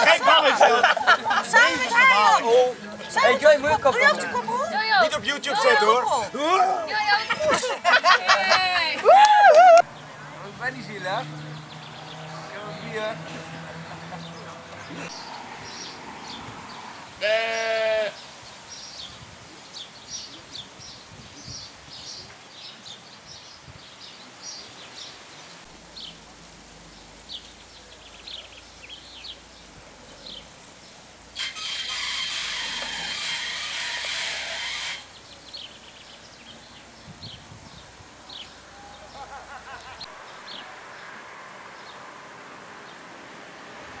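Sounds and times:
small birds chirping: 9.9s - 42.1s.

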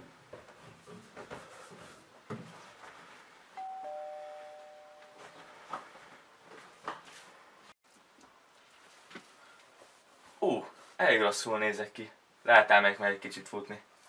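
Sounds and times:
footsteps on wooden stairs: 0.0s - 3.1s
two-tone doorbell chime: 3.6s - 5.5s.

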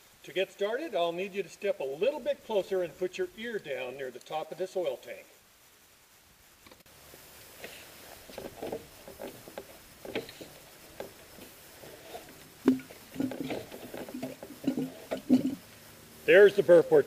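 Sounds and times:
oil tank gurgling: 7.6s - 15.6s.

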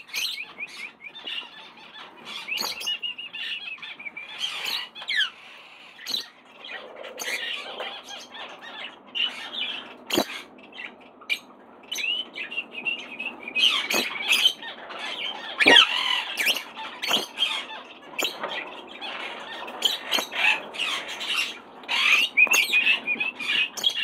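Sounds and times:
parrots squawking and chattering: 0.0s - 24.0s.

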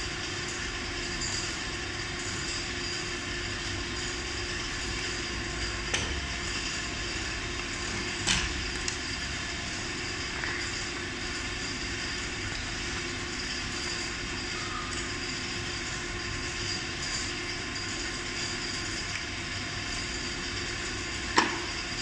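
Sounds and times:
low machinery hum: 0.0s - 19.3s.

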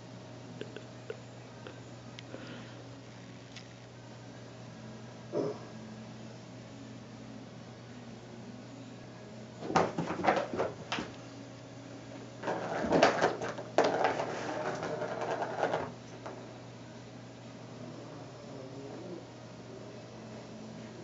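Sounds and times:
plastic ball rattling around track: 12.4s - 16.0s.

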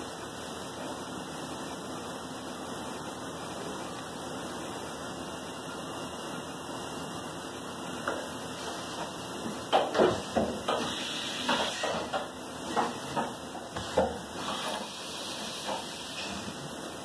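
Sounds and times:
steady hiss: 10.3s - 17.0s.

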